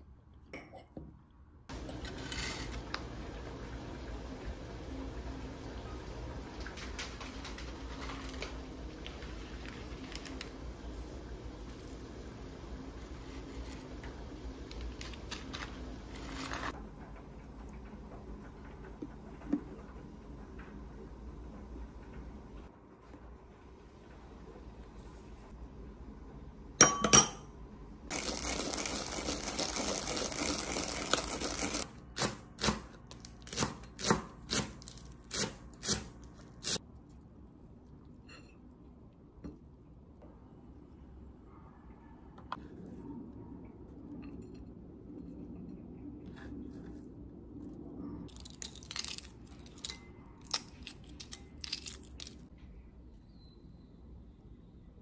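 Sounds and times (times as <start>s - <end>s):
metal spoon clinking ceramic bowl: 26.8s - 27.4s
eggshell cracking and peeling: 48.3s - 52.5s.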